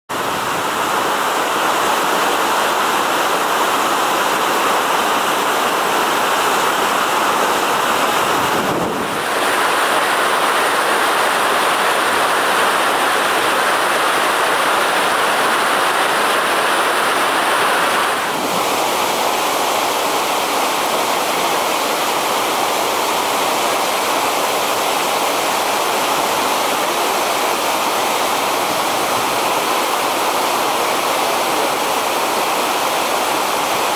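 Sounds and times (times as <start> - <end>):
meltwater and ice rushing: 0.1 - 33.9.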